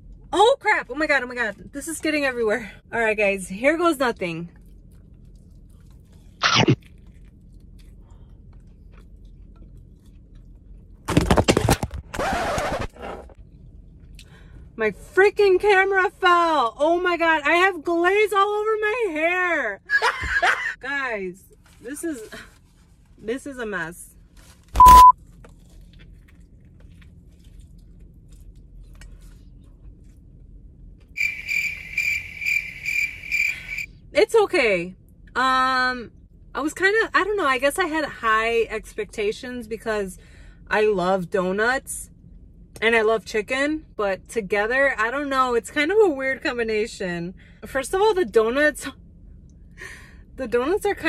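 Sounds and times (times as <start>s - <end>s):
faint chewing: 4.5s - 11.0s, 25.2s - 31.2s
cricket chirping: 31.2s - 33.9s.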